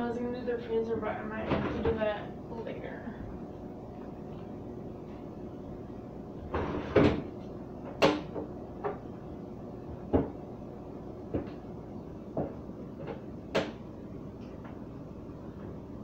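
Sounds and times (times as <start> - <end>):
fridge drawers knocking and clattering: 6.5 - 7.3.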